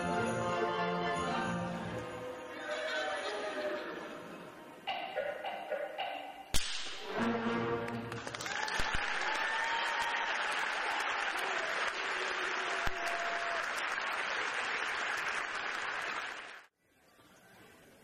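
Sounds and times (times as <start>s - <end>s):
audience applauding: 7.7s - 16.7s.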